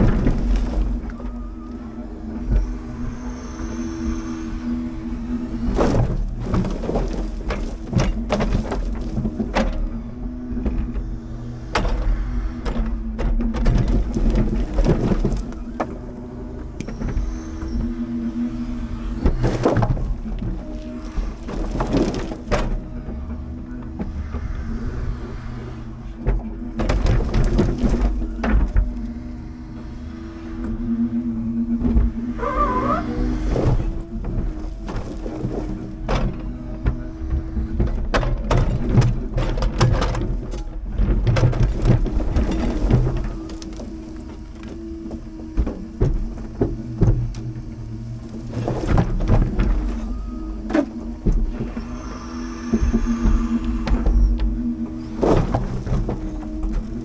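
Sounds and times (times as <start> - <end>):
knocks and clatter: 0.0 - 1.4, 5.6 - 18.5, 19.2 - 24.4, 26.2 - 29.1, 33.4 - 52.0
logs knocking and clattering: 5.8 - 9.9.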